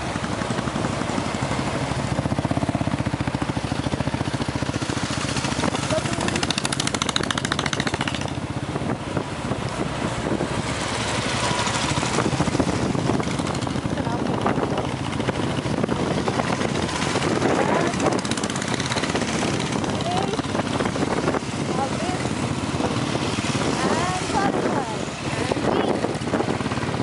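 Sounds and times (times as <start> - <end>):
motorcycle engine running: 0.0 - 27.0
wind rushing over microphone: 4.6 - 27.0.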